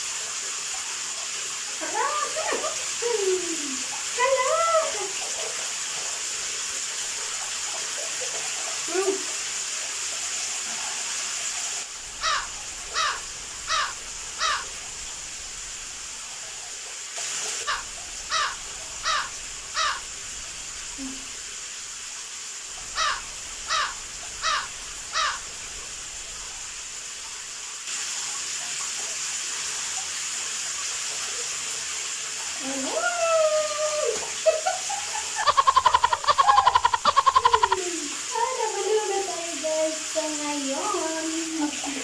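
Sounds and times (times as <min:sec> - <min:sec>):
running water hiss: 0:00.0 - 0:42.0
harsh crow-like caws: 0:12.1 - 0:15.5, 0:17.6 - 0:20.6, 0:22.8 - 0:26.0, 0:35.4 - 0:37.8.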